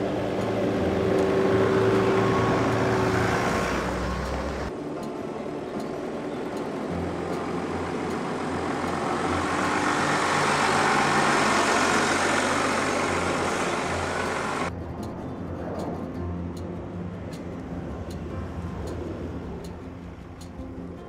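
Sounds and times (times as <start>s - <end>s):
tyres on dirt track: 0.0s - 21.0s
car engine running low: 6.7s - 14.7s.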